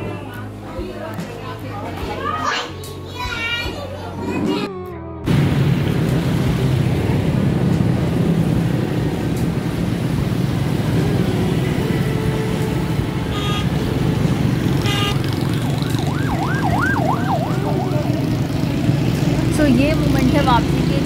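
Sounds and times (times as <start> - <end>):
vehicle engine and road noise: 2.9 - 21.0
car horn honks: 11.8 - 15.4
wavering siren: 13.2 - 18.9.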